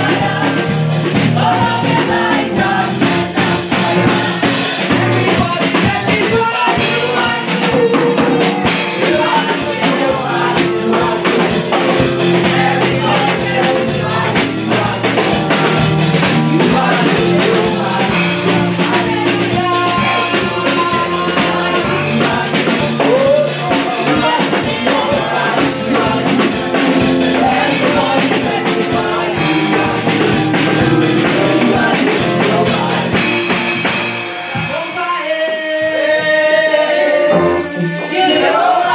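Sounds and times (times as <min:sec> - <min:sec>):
drums: 0:00.0 - 0:38.9
women singing gospel: 0:00.0 - 0:38.9.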